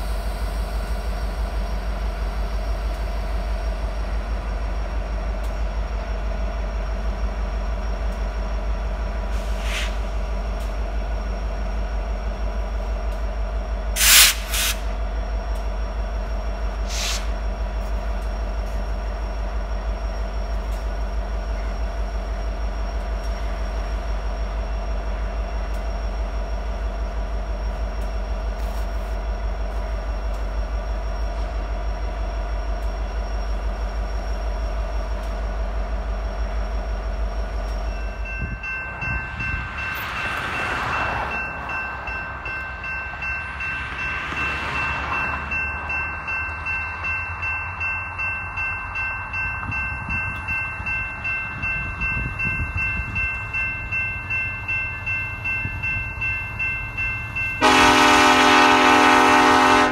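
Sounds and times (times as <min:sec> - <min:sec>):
crossing warning bell ringing: 0:00.0 - 0:09.4, 0:10.0 - 0:59.9
diesel locomotives rumbling: 0:00.0 - 0:59.9
train air horn: 0:57.6 - 0:59.9.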